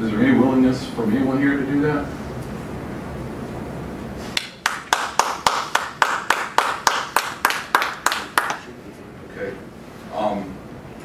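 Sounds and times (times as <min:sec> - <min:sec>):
hands clapping: 0:04.4 - 0:08.7.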